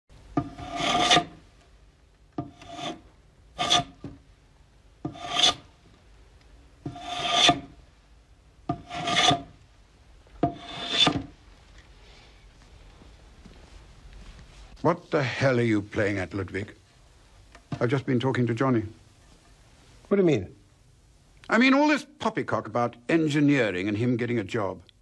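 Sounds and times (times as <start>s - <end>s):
hand plane shaving wood: 0.5s - 1.3s, 2.6s - 3.0s, 3.6s - 3.9s, 5.1s - 5.6s, 6.9s - 7.6s, 8.8s - 9.4s, 10.6s - 11.2s.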